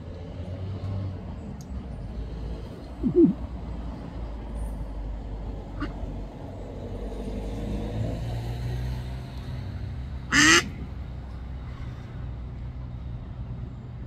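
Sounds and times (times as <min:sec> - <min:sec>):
duck quacking: 0:05.8 - 0:06.0, 0:10.3 - 0:10.7.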